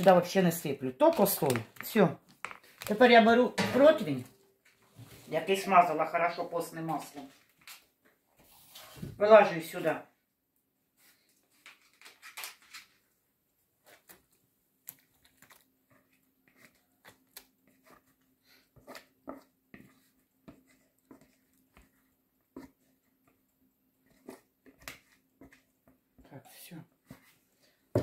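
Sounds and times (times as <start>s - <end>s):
spoon scraping plastic bowl: 24.0s - 25.8s.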